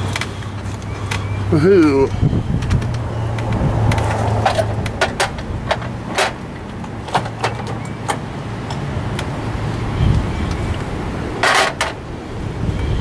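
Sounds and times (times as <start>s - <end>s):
sharp clicks and knocks: 2.5s - 9.8s, 11.4s - 12.0s.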